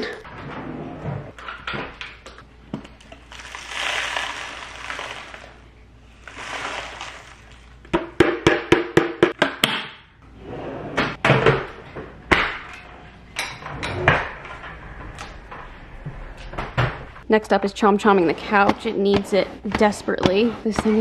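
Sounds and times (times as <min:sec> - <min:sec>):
dust sliding into bin rustling: 0:06.2 - 0:07.7.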